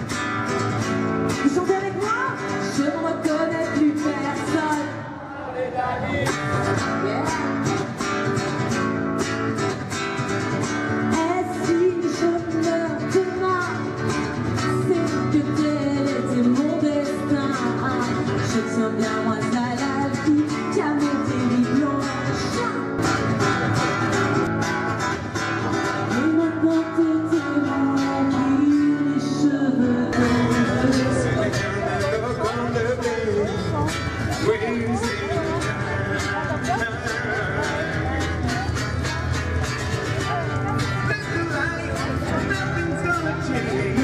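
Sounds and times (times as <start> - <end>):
strummed acoustic guitar: 0.0 - 5.2, 5.9 - 44.0
woman singing through microphone: 1.4 - 5.1, 11.1 - 14.0, 14.6 - 22.9, 26.1 - 38.7.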